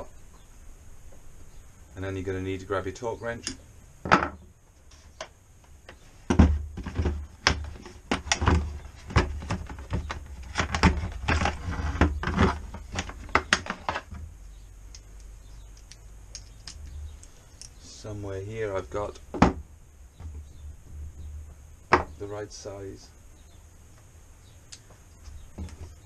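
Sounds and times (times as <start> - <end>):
tool set down on wood: 4.0 - 4.4.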